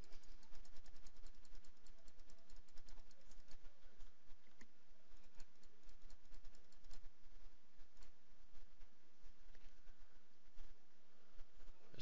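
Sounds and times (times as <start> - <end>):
computer mouse clicking: 0.0 - 7.2
steady low hum: 0.0 - 12.0.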